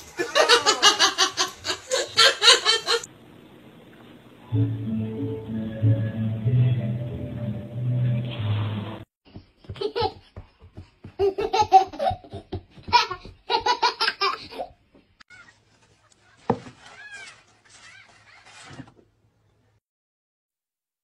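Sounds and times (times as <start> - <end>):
toddler laughing: 11.2 - 18.6.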